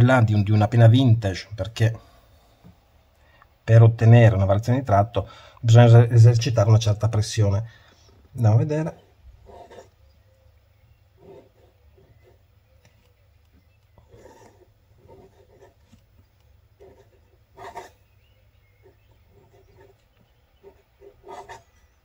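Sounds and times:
pen nib scratching on paper: 11.2s - 12.4s, 13.9s - 16.1s, 16.8s - 18.0s, 18.8s - 21.8s.

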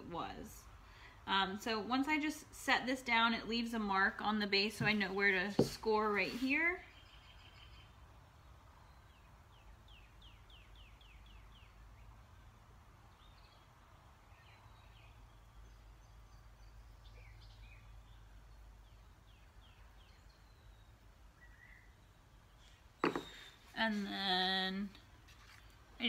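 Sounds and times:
distant bird chirps: 14.3s - 24.1s.

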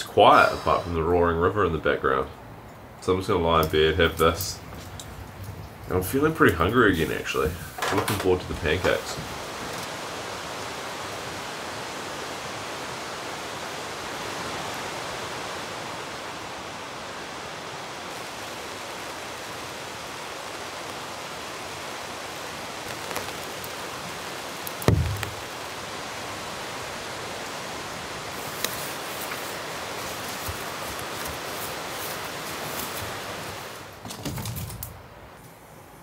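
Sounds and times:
river rushing: 8.6s - 34.0s
short thump: 24.8s - 25.4s.

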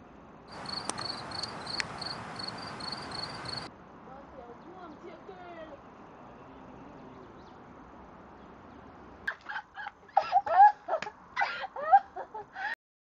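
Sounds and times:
faint steady hiss: 0.0s - 6.8s
young woman laughing loudly: 9.3s - 12.8s.

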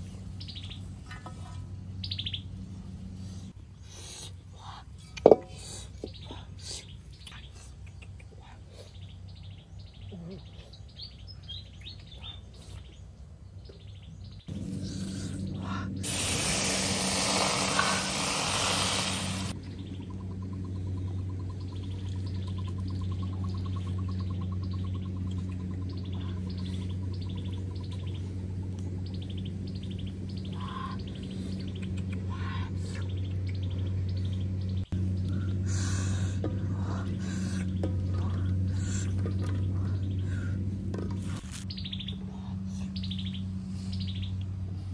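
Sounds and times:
birds chirping: 0.0s - 44.9s
steady low hum: 0.0s - 44.9s
loud hiss: 16.0s - 19.6s.

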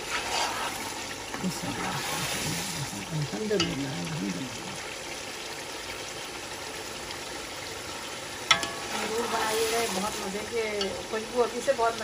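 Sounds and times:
meatballs sizzling in oil: 0.0s - 12.0s
spoon turning food in pot: 8.4s - 11.2s.

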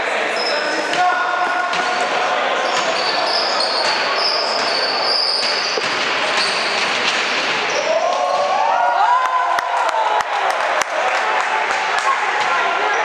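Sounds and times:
sports hall crowd noise: 0.0s - 13.0s
shoes squeaking: 2.6s - 8.4s.

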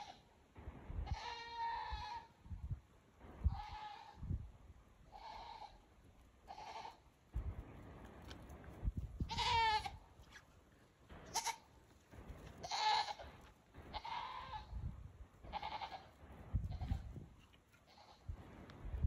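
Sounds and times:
goat bleating: 0.0s - 0.2s, 1.0s - 2.4s, 3.4s - 4.2s, 5.1s - 7.2s, 9.2s - 10.4s, 11.2s - 11.8s, 12.4s - 14.8s, 15.4s - 18.4s.

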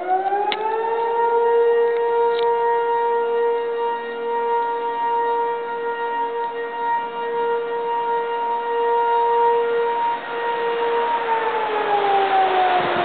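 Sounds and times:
fire siren wailing: 0.0s - 13.0s
rushing noise: 10.1s - 13.0s.

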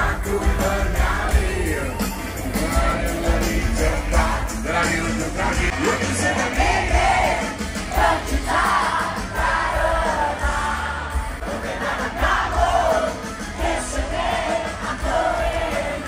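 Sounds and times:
crowd voices: 0.0s - 16.0s
rock band playing live: 0.0s - 16.0s.

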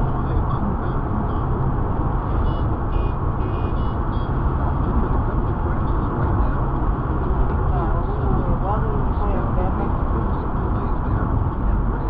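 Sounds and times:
car road and engine noise: 0.0s - 12.0s
faint short high beeps: 2.4s - 4.3s.

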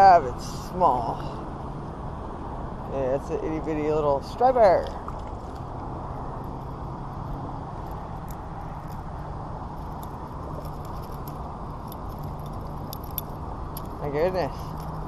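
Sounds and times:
low rumble with faint hum: 0.0s - 15.0s
small clicks and rattles: 7.2s - 9.1s, 9.7s - 15.0s.

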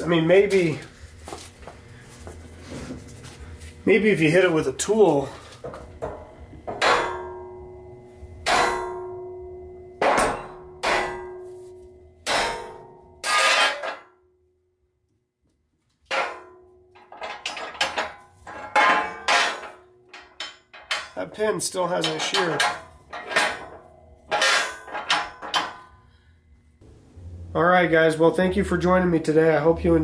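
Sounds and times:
metallic clanks: 5.6s - 7.8s, 8.4s - 14.2s, 16.1s - 26.2s
hammer striking metal: 6.0s - 14.2s, 16.1s - 26.0s.

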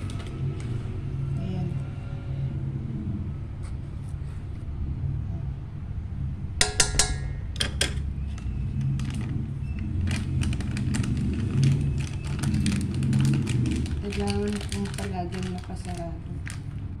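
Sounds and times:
steady low rumble: 0.0s - 17.0s
spoon clinking on metal pot: 6.6s - 8.0s.

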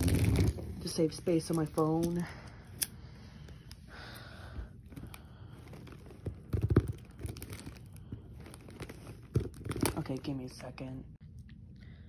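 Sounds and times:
packing tape tearing: 0.0s - 0.8s, 5.8s - 10.0s
cardboard rustling and scraping: 5.6s - 10.2s.

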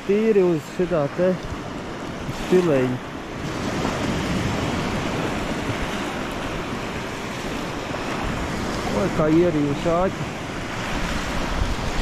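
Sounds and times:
small waves breaking on beach: 0.0s - 12.0s.

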